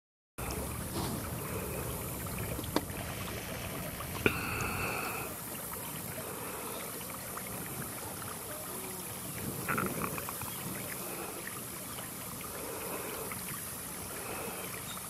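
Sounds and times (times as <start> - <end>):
wind rumbling on microphone: 0.4 - 4.7, 9.2 - 11.0.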